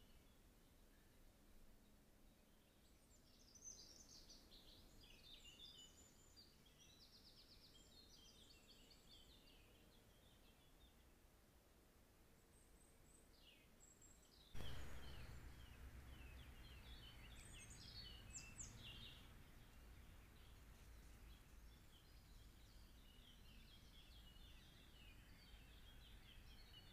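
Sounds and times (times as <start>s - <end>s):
background hiss and low rumble: 0.0s - 26.9s
birds chirping: 12.8s - 26.9s.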